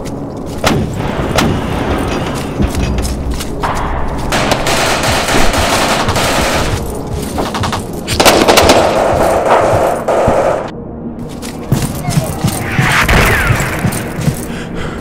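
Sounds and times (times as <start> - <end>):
rapid gunfire: 4.3 - 6.7, 8.2 - 10.7.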